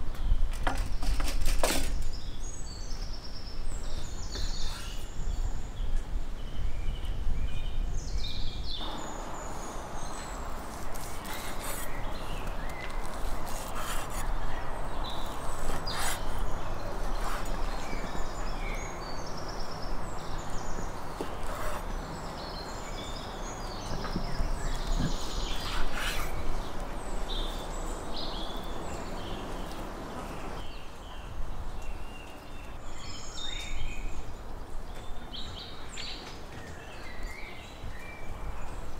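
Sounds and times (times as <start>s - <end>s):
small birds chirping: 1.9s - 38.9s
steady background hiss: 2.0s - 38.9s.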